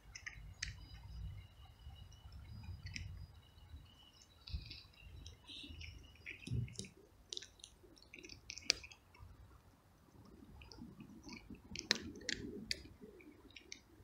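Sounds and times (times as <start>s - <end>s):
cat crunching kibble: 6.2s - 9.2s.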